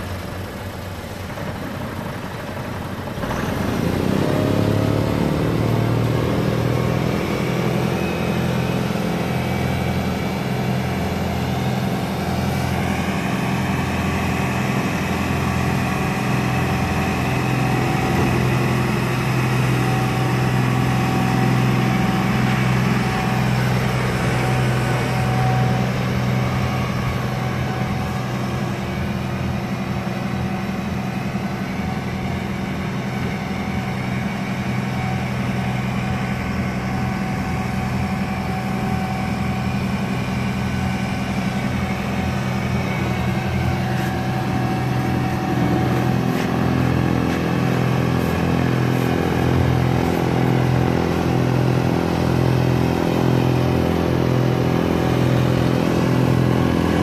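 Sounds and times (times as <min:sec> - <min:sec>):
tractor diesel engine running: 0:00.0 - 0:57.0
snow blower throwing snow: 0:36.9 - 0:57.0.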